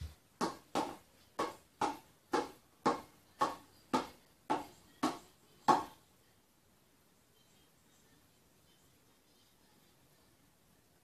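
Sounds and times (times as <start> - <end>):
hand slapping a ball: 0.0 - 5.9.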